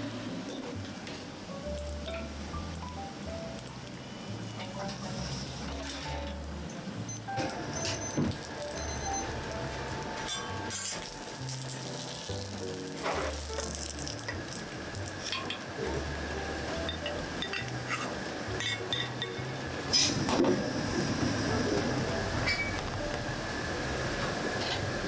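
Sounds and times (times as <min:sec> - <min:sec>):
dumplings sizzling on a griddle: 0:09.6 - 0:19.7.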